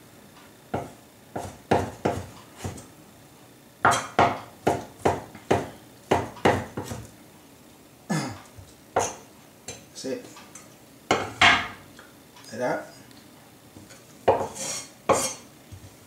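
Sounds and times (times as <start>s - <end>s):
cleaver chopping on wooden board: 0.8s - 2.8s, 3.9s - 7.0s.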